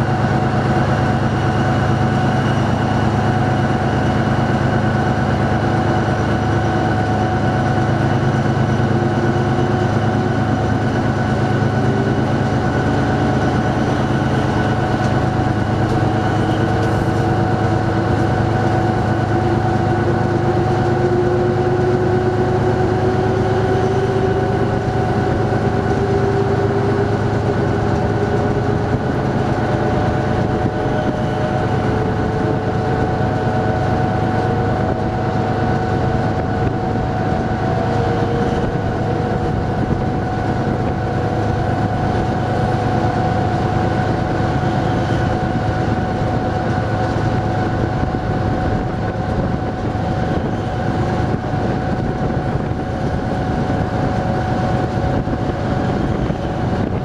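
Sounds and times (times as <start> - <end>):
diesel train engine drone: 0.0 - 57.0
moving train noise: 0.0 - 57.0
rising whine: 0.0 - 57.0.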